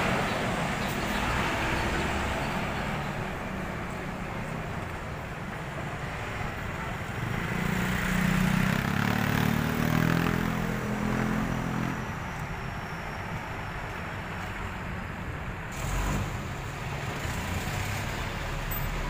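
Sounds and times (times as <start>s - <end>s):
road traffic passing: 0.0s - 19.0s
vehicle engine drone passing: 6.5s - 13.0s.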